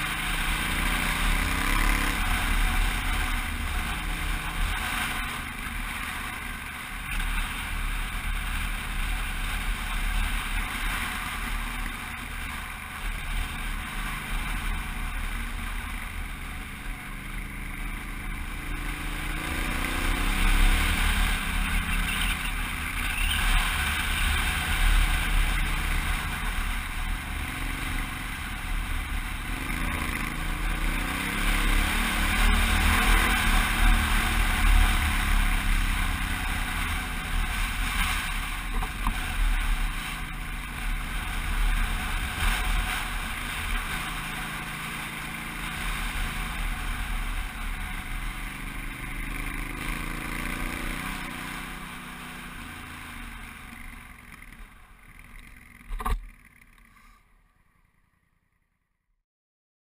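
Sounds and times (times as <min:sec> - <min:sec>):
motorcycle engine running: 0:00.0 - 0:57.1.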